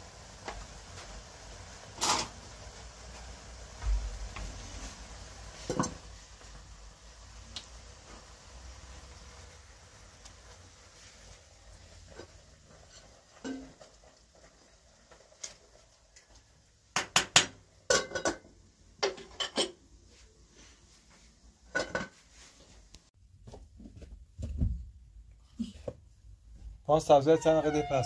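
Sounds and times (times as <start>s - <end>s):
pot lid clinking on pot: 17.2s - 19.8s.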